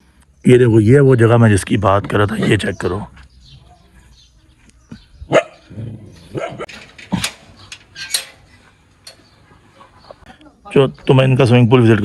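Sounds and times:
dog barking: 0:05.3 - 0:05.7.

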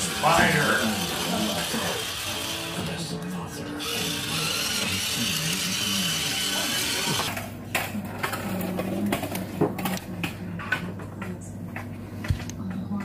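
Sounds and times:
toy motor whirring: 0:00.0 - 0:03.0, 0:03.8 - 0:07.4.

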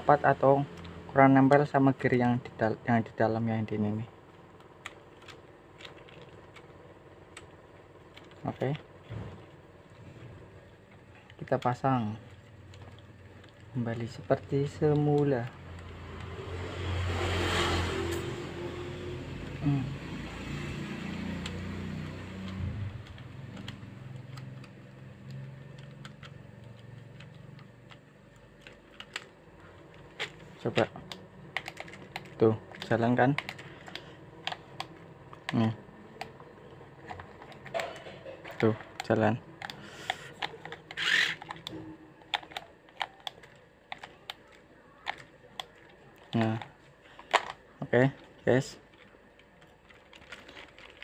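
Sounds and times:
low engine-like hum: 0:00.0 - 0:51.0
small steering motor whir: 0:00.4 - 0:44.0
light plastic clicks: 0:36.2 - 0:51.0.

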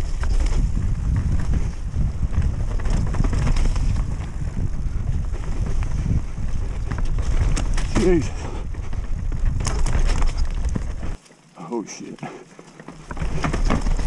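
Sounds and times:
bike knocking and rattling: 0:00.0 - 0:11.2, 0:12.5 - 0:14.0
wind buffeting microphone: 0:00.0 - 0:11.2.

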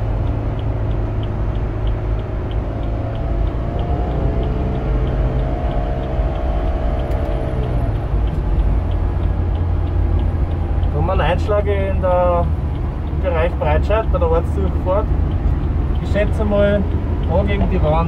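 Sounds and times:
car engine running hard: 0:00.0 - 0:18.0
road and tyre rumble: 0:00.0 - 0:18.0.

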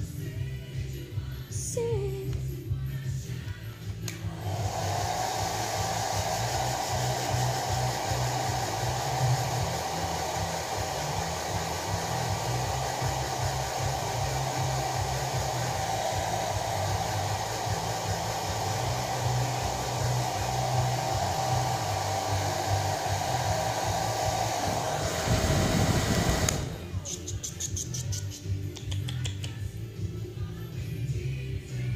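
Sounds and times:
hair dryer blowing: 0:04.0 - 0:27.3.

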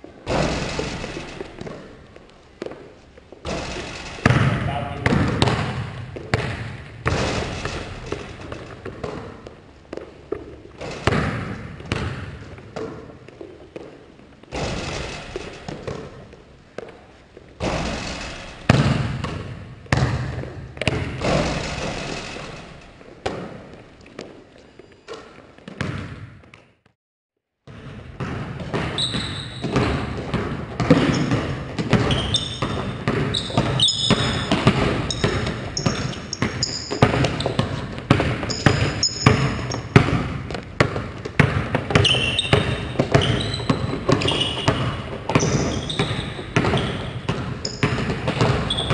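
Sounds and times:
basketball bouncing on hardwood: 0:00.2 - 0:24.4, 0:25.1 - 0:26.6, 0:27.7 - 0:48.9
sneaker squeaks on court: 0:17.0 - 0:26.7, 0:28.6 - 0:48.9.

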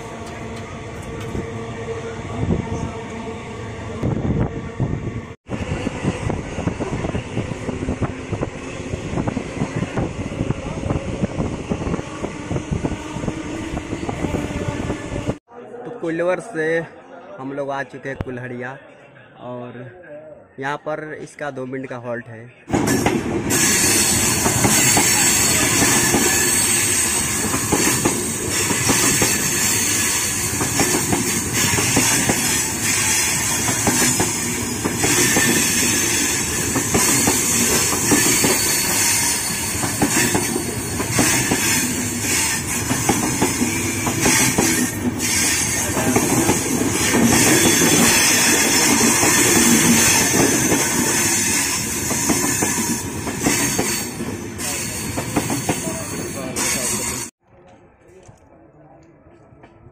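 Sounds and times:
train coaches rushing past: 0:22.7 - 0:57.3.

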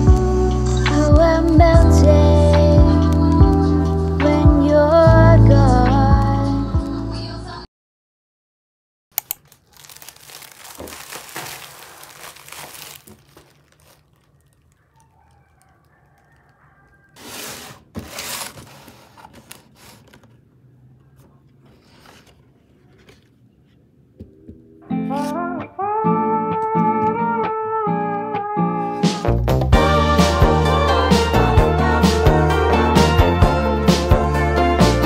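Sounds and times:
packaging tearing and crinkling: 0:09.2 - 0:16.5, 0:17.4 - 0:20.3.

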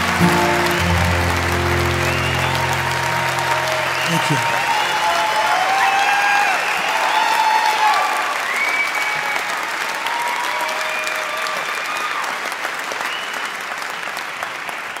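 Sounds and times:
high held calls: 0:00.0 - 0:05.5
crowd applauding: 0:00.0 - 0:15.0.

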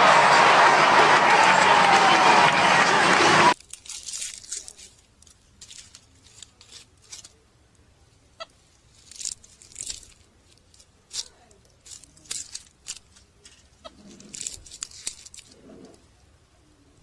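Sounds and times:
monster truck engine and crowd: 0:00.0 - 0:03.6
crunching on dry leaf litter: 0:03.6 - 0:07.5, 0:08.5 - 0:15.6.

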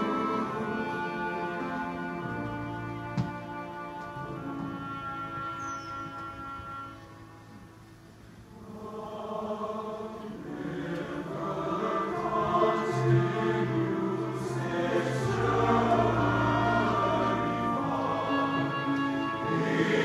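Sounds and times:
men's chorus singing: 0:08.6 - 0:20.0.

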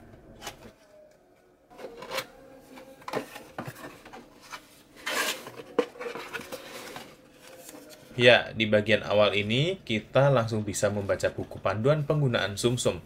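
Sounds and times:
paper rustling: 0:01.8 - 0:08.2.

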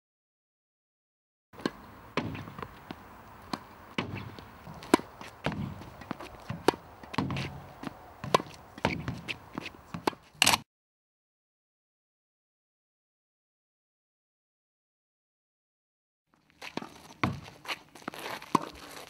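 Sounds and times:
dull ball thuds: 0:01.6 - 0:10.3
footsteps on hard court: 0:01.6 - 0:10.4, 0:16.4 - 0:19.0
tennis ball popping off racket: 0:01.6 - 0:10.6.

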